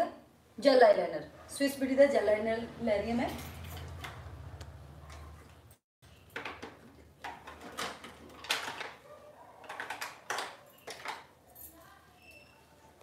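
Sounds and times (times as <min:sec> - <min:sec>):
small objects rustling and knocking: 0:06.3 - 0:09.0, 0:09.6 - 0:11.4.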